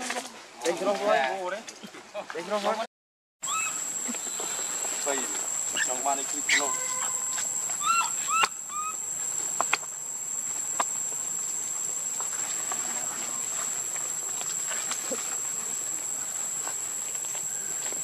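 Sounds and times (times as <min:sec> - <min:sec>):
baby monkey squeaky calls: 0:03.4 - 0:04.2, 0:05.7 - 0:09.0
insects droning: 0:03.4 - 0:18.0.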